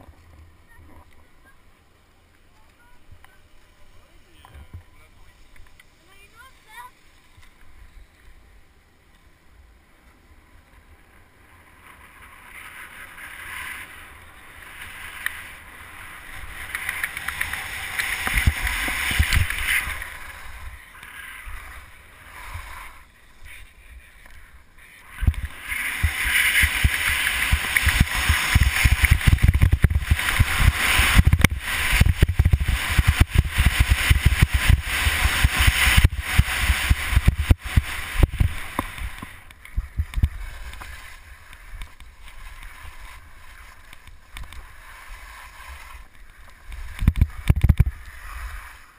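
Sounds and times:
skis scraping over snow: 10.2 - 48.9
wind rumbling on camera: 10.6 - 48.9.

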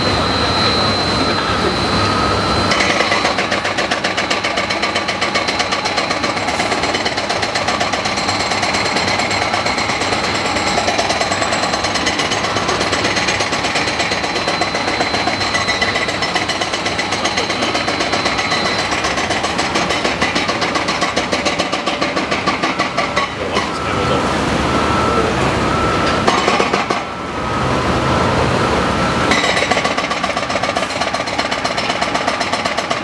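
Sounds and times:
rapid mechanical hammering: 2.7 - 23.6, 29.3 - 33.0.

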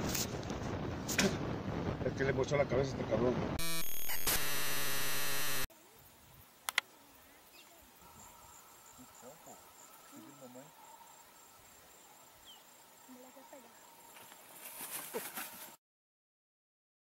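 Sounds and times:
low even insect trill: 3.6 - 15.6
high pulsing insect trill: 3.6 - 15.7
sharp clicks: 6.6 - 6.9.

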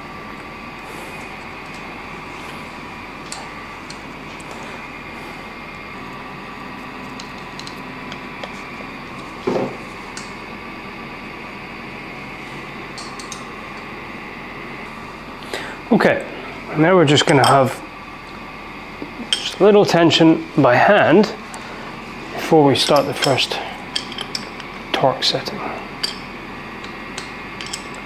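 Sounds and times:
electrical hum and hiss: 0.0 - 28.0
small metal parts clicking: 27.2 - 28.0.

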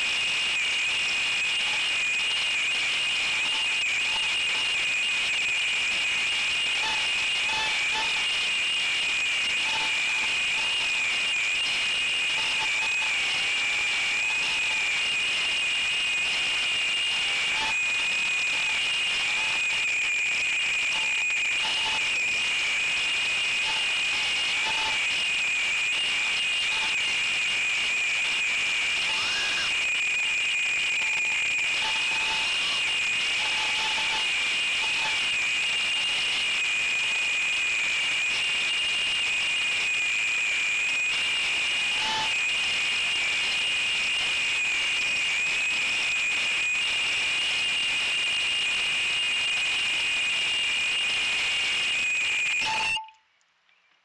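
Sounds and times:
drone motors whining: 0.0 - 53.1.

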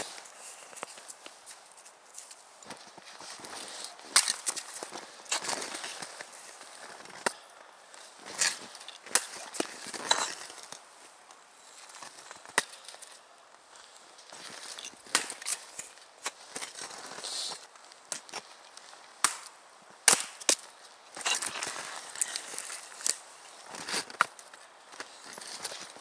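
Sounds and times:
axe splitting firewood: 14.6 - 16.8, 19.2 - 24.3.

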